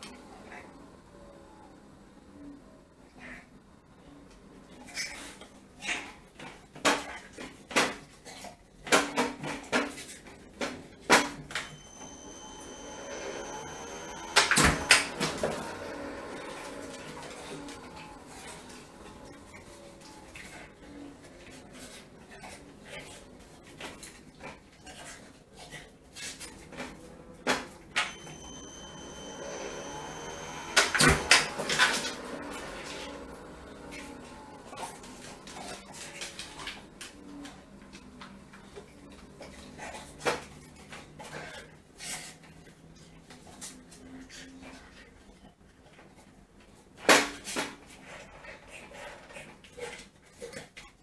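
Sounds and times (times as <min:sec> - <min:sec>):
machine whirring high whine: 0:11.6 - 0:20.9, 0:27.9 - 0:37.8.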